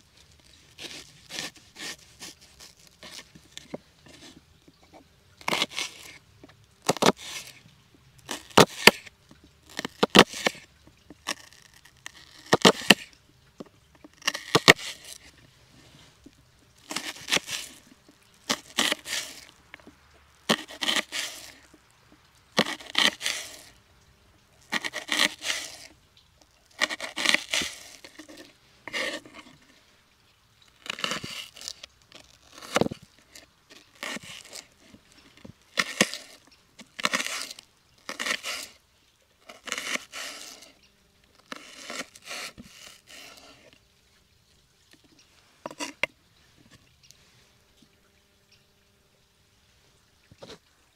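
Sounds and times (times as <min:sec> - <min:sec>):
knife slicing onion: 0:00.8 - 0:03.3, 0:05.4 - 0:06.2, 0:06.8 - 0:07.5, 0:18.5 - 0:19.5, 0:20.5 - 0:21.6, 0:22.6 - 0:23.7, 0:24.7 - 0:25.9, 0:37.0 - 0:38.8, 0:39.5 - 0:40.7.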